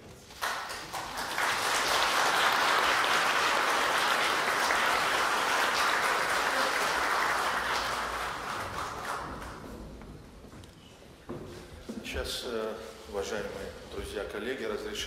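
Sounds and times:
audience applauding: 0.2s - 9.7s.

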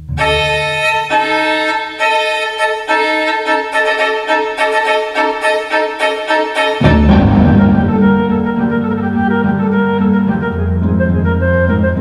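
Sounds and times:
low bowed strings: 0.0s - 12.0s
violin playing held notes: 0.0s - 12.0s.

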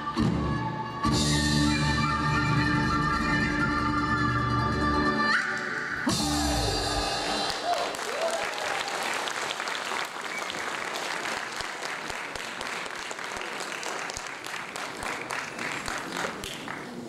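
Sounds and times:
audience applauding: 5.6s - 17.0s.

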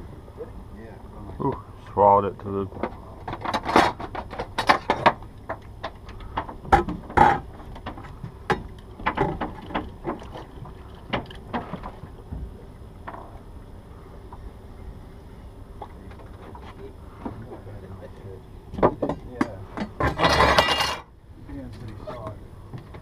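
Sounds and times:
low steady background: 0.0s - 23.0s
knocks and clicks of gear on boat: 2.7s - 13.5s, 15.8s - 20.7s.

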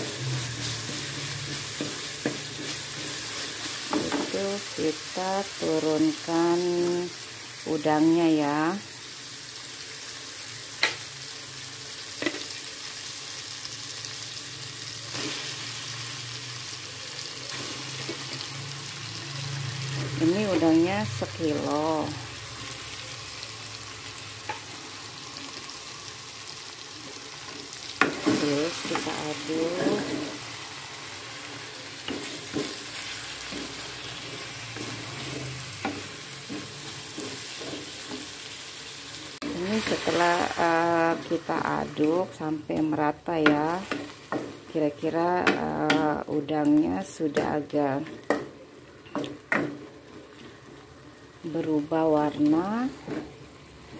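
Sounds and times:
spatula scraping and knocking pan: 0.0s - 4.4s, 28.0s - 30.4s, 31.5s - 38.4s
paste sizzling in oil: 0.0s - 46.0s.

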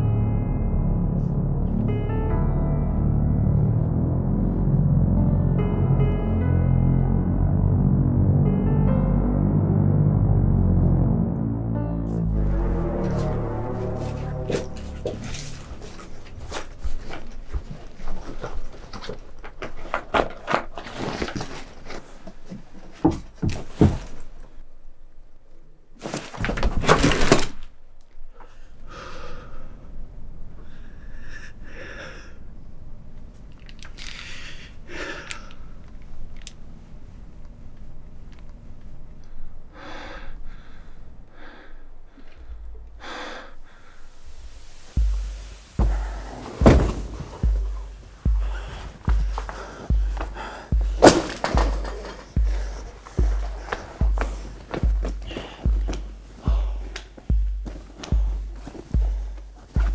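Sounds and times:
bag rustling: 14.0s - 24.4s, 44.2s - 59.9s
handling clicks and knocks: 16.4s - 24.4s, 51.0s - 59.9s
dull thumps: 45.0s - 59.9s
man gasping for breath: 47.6s - 59.4s.

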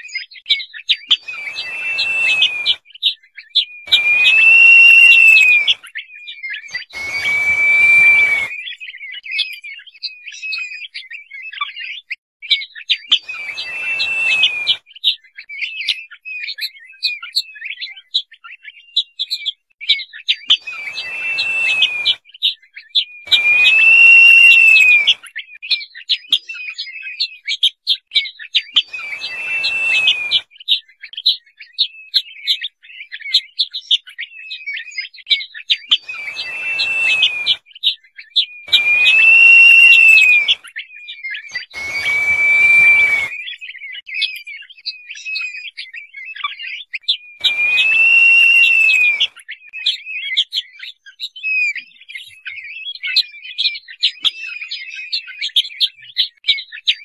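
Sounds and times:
partridge whistling calls: 1.1s - 2.8s, 3.9s - 5.8s, 6.7s - 8.8s, 13.1s - 14.9s, 20.5s - 22.2s, 23.3s - 25.3s, 28.8s - 30.5s, 35.9s - 37.7s, 38.6s - 40.8s, 41.5s - 43.6s, 47.4s - 49.4s
short high chirps: 3.9s - 5.8s, 6.8s - 8.6s, 23.3s - 25.2s, 28.9s - 30.4s, 36.1s - 37.6s, 38.7s - 40.6s, 41.6s - 43.4s, 47.4s - 49.3s.

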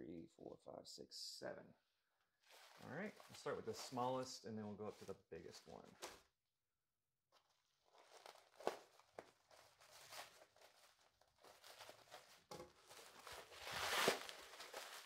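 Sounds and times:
plastic wrap crinkling and rustling: 2.5s - 4.0s, 7.4s - 15.0s
scissors snipping plastic wrap: 12.9s - 15.0s.

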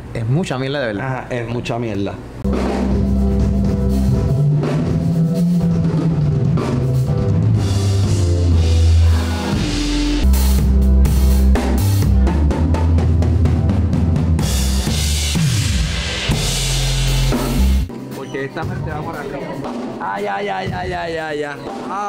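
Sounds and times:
deep bass notes: 2.4s - 17.9s
keyboard chords: 2.4s - 20.0s
drum kit beat: 2.4s - 22.0s.

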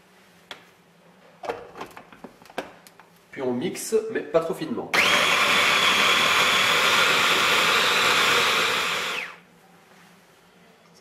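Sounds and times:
hand blender motor whine: 5.0s - 9.4s.

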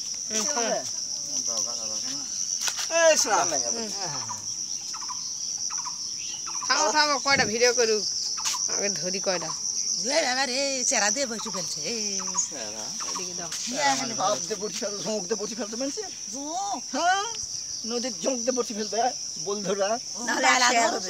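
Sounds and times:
insects droning: 0.0s - 21.0s.

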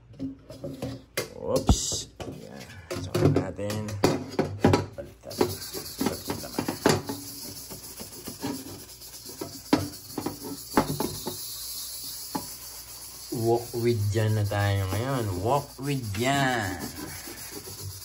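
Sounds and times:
steady hiss: 5.2s - 18.0s
wok scrubbing: 5.3s - 18.0s.

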